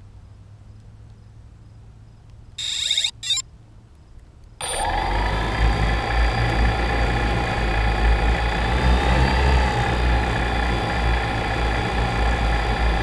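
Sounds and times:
drone motors whining: 2.6 - 3.4, 4.6 - 13.0
short electronic beeps: 2.6 - 3.4.

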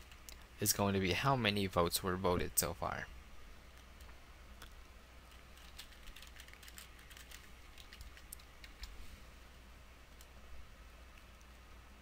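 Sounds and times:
faint keyboard typing: 3.7 - 9.0, 10.1 - 10.4.

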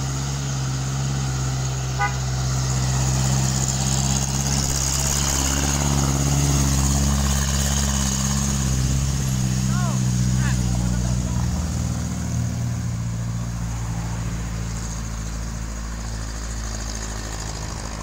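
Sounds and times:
diesel truck driving past: 0.0 - 18.0
short horn toot: 2.0 - 2.3.

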